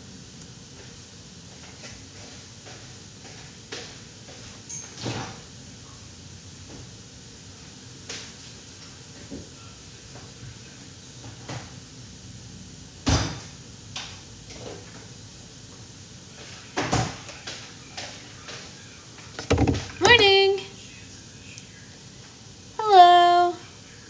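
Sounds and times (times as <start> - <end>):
carton thumping on counter: 19.4 - 20.0
cupboard doors shutting: 19.4 - 20.0
knocks and clicks in kitchen: 19.4 - 20.2.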